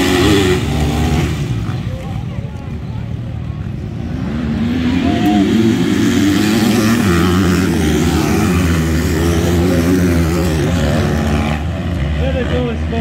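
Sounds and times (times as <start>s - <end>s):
dirt bike engines revving: 0.0s - 13.0s.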